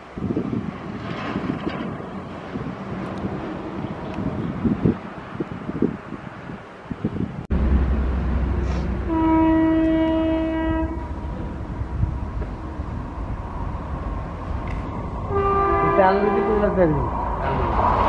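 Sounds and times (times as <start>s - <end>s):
train rumbling: 0.0s - 18.0s
locomotive horn blast: 8.6s - 11.2s, 15.3s - 16.8s.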